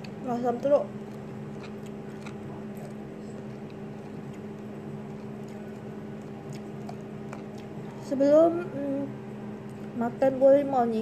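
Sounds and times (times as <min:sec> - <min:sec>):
chewing mouth clicks: 0:00.0 - 0:08.0
steady low hum: 0:00.0 - 0:11.0.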